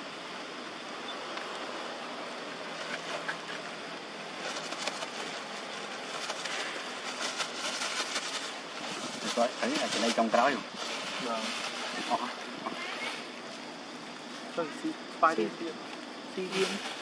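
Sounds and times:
outdoor background noise: 0.0s - 17.0s
scratchy clicks and rustles: 4.4s - 10.3s.

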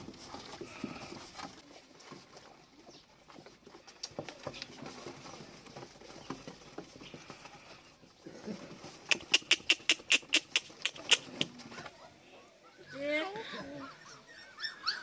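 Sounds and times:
puppies nursing clicks and squeaks: 0.0s - 7.7s.

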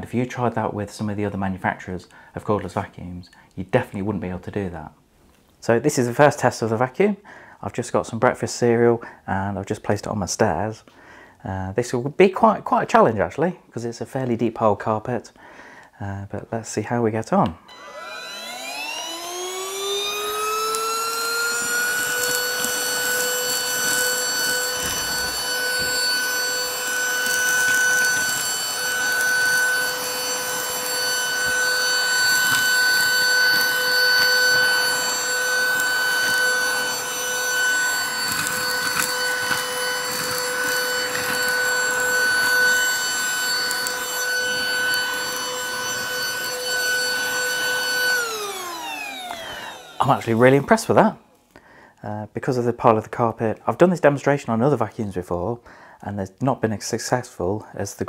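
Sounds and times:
handheld vacuum cleaner whine: 17.7s - 51.4s
crumbs crackling up nozzle: 19.9s - 50.8s.

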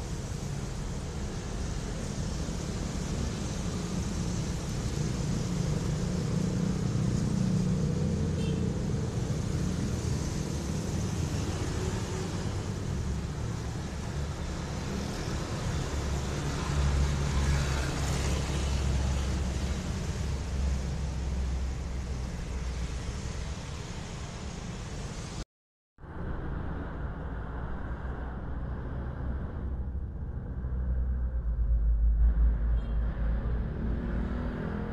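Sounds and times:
road noise: 0.0s - 25.4s, 26.0s - 34.9s
vehicle low rumble: 26.0s - 34.9s.

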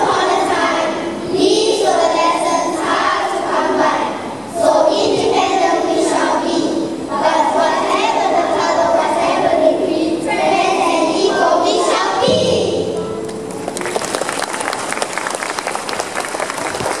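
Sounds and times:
children singing in unison: 0.0s - 13.0s
audience applause: 13.2s - 17.0s.

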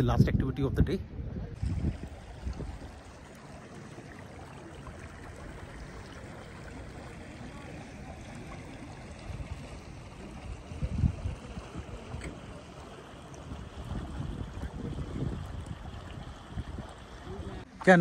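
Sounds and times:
wind buffeting microphone: 0.0s - 3.7s, 8.2s - 17.7s
stream running over stones: 1.6s - 18.0s.

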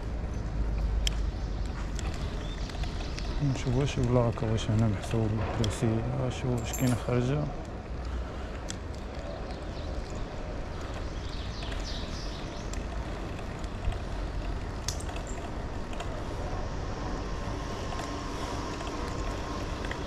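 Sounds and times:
bicycle tyre and road noise: 0.0s - 20.0s
bike clicks and rattles: 0.0s - 20.0s
wind rumble on microphone: 7.5s - 20.0s.

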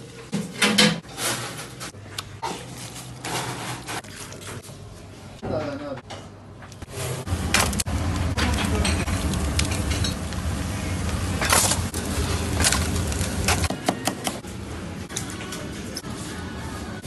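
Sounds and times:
skewers sizzling on grill: 6.9s - 13.7s.

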